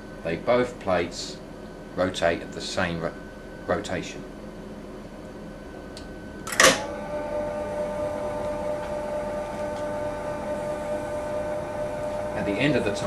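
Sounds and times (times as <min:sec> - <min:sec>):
grinder-polisher motor whine: 0:06.9 - 0:13.0.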